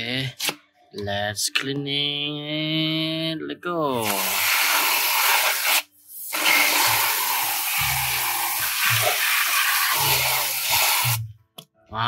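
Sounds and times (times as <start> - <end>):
hose spray hissing on concrete: 4.0 - 11.2.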